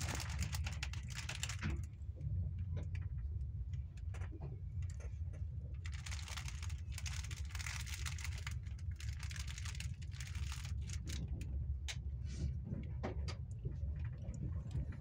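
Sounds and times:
dense crackling and clicking: 0:00.0 - 0:02.0, 0:02.6 - 0:12.0
train low rumble: 0:00.0 - 0:15.0.

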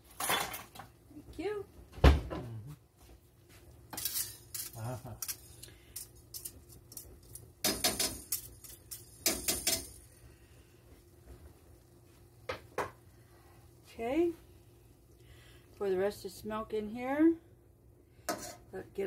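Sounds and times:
whisk scraping metal skillet: 0:03.9 - 0:09.8.

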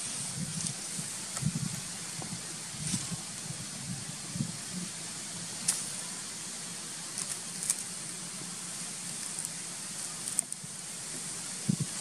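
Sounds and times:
outdoor background hiss: 0:00.0 - 0:12.0
small clicks and crackles: 0:07.1 - 0:08.2, 0:09.0 - 0:10.7.

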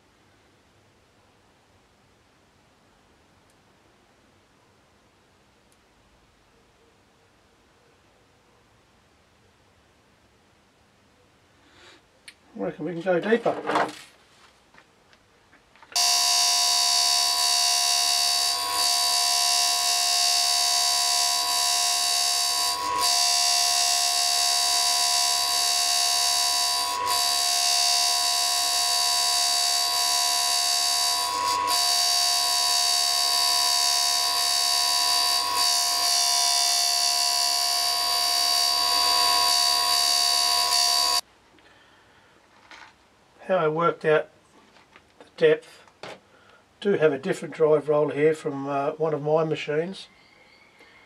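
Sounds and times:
grinder whining: 0:15.9 - 0:41.2.

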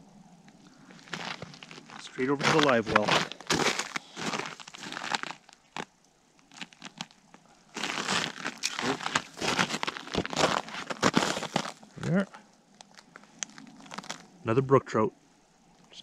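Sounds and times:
boots crunching on snow: 0:00.9 - 0:05.5, 0:07.8 - 0:11.9.

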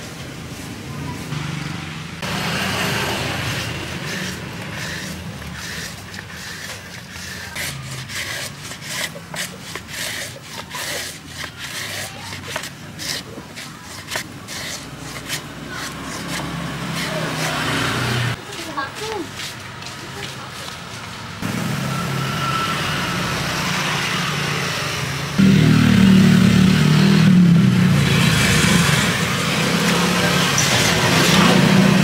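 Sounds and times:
banana scraping on mandoline slicer: 0:02.2 - 0:21.0.

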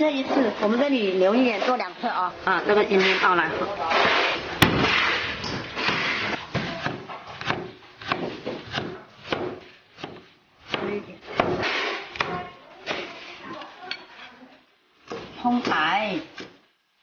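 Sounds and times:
cleaver chopping on wooden board: 0:05.8 - 0:12.4.

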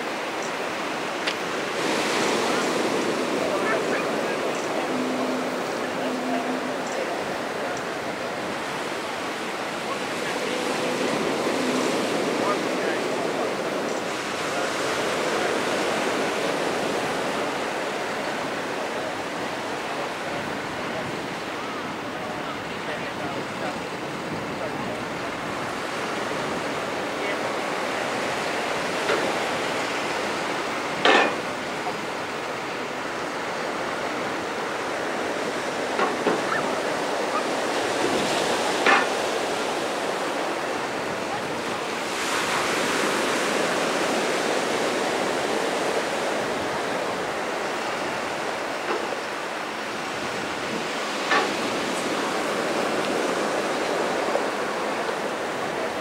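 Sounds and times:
surf washing onto beach: 0:00.0 - 0:56.0.

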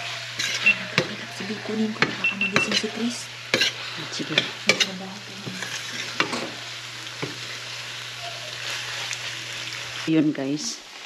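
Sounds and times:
food sizzling in a pan: 0:00.0 - 0:11.0
metal utensil scraping a pan: 0:00.4 - 0:06.6.

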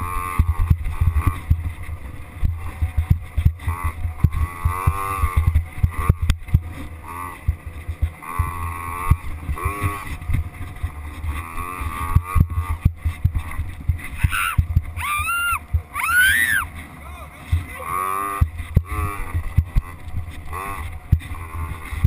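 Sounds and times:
dirt bike engine revving: 0:00.0 - 0:22.0
knocks and thumps from bumps: 0:00.4 - 0:15.0, 0:15.6 - 0:16.0, 0:18.4 - 0:22.0.

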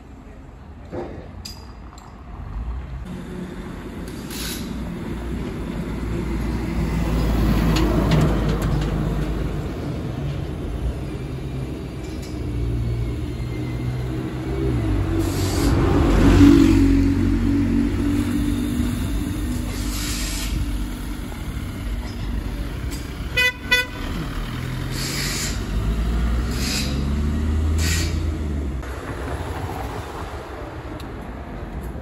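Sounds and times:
diesel van engine running: 0:17.1 - 0:28.8.

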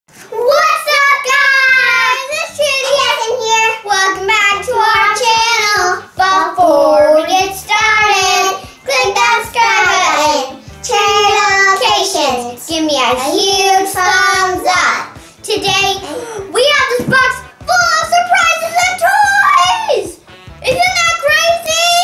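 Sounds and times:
girls singing: 0:01.5 - 0:17.2
backing music with a beat: 0:02.5 - 0:22.0.

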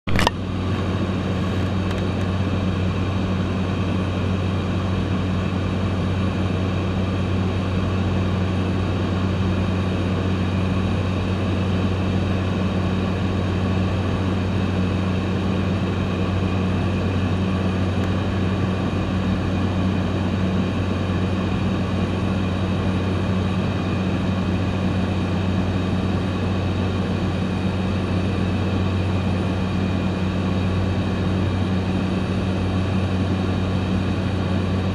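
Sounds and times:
propeller plane engine drone: 0:00.1 - 0:34.9.

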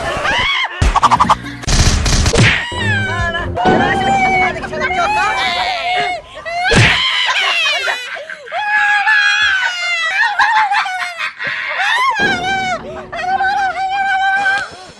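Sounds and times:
men screaming and yelling: 0:05.4 - 0:14.9.

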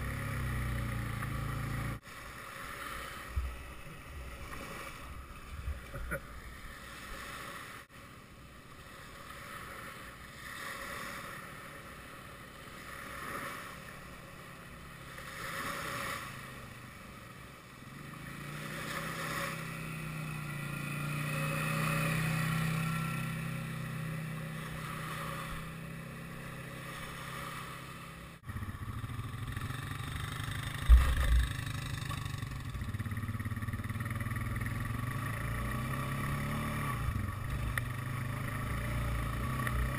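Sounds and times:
atv engine: 0:00.0 - 0:39.9
small waves washing on sand: 0:02.0 - 0:28.7.

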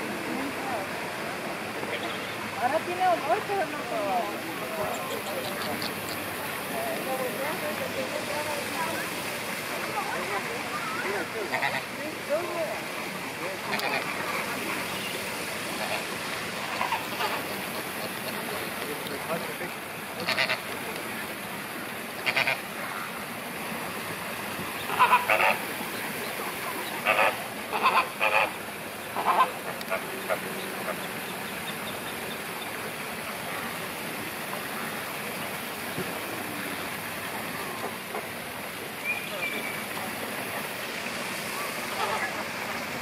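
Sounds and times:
steady background hiss: 0:00.0 - 0:43.0
flamingos honking: 0:01.7 - 0:09.1, 0:09.7 - 0:21.3, 0:22.0 - 0:23.2, 0:24.5 - 0:32.7, 0:41.5 - 0:43.0.

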